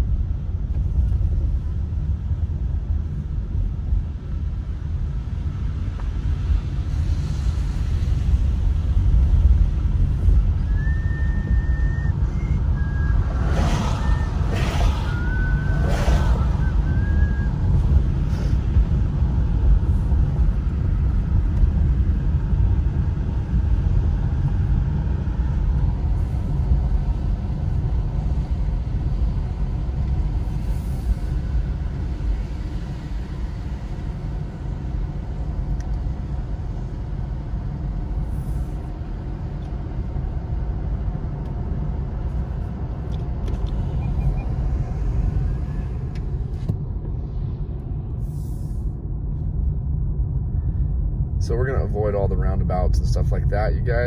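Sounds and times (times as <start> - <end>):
car cabin road rumble: 0.0 - 54.0.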